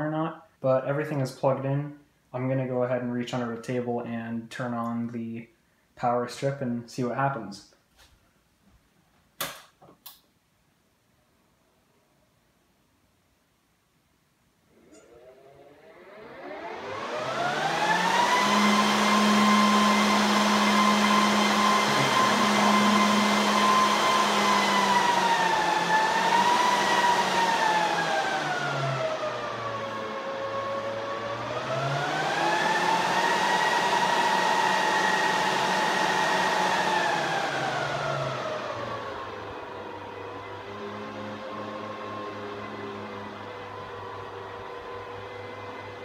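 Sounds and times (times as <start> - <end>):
server cooling fans whining: 14.6 - 46.0.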